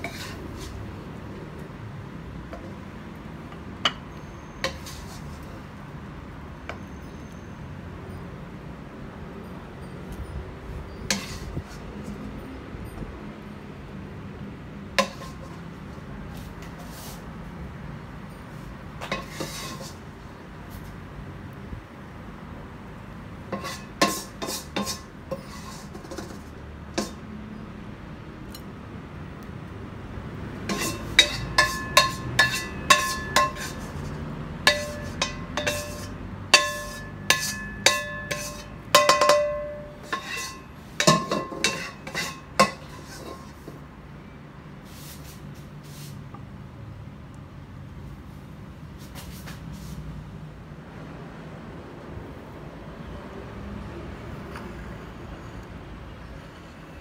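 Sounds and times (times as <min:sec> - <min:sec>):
utensil clinking on ceramic plate: 0:30.7 - 0:34.0, 0:34.7 - 0:43.5.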